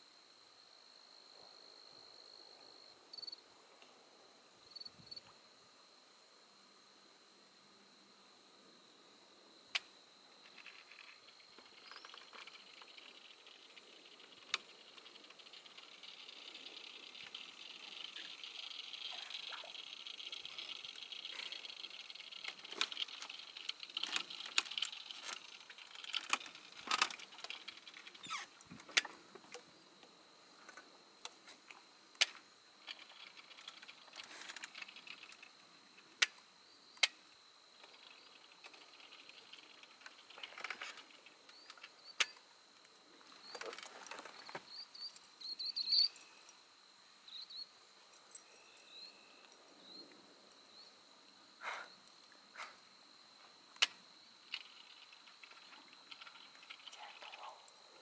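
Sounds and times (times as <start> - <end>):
high-pitched insect drone: 10.2 - 28.6, 32.5 - 58.0
sharp clicks and ticks: 53.8 - 57.4.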